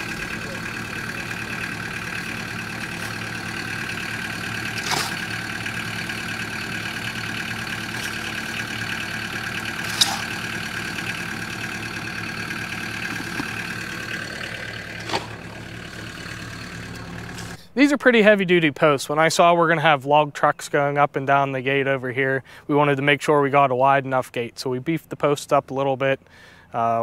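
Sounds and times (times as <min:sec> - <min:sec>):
track loader idling with whine: 0:00.0 - 0:17.8
shovel scraping concrete: 0:04.7 - 0:05.4, 0:07.8 - 0:08.4, 0:09.8 - 0:10.5, 0:15.0 - 0:15.4.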